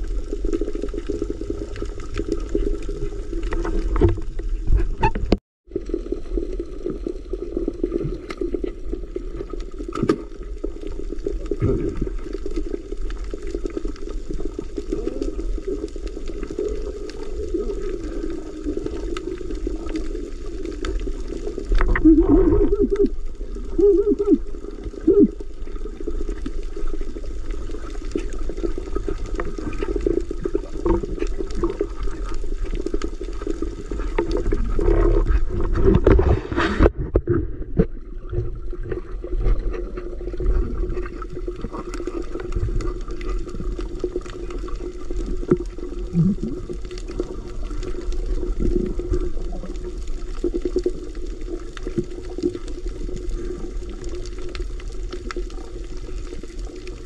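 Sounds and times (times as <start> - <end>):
rush of water: 0.0 - 37.2
water swirling and bubbling: 0.0 - 57.0.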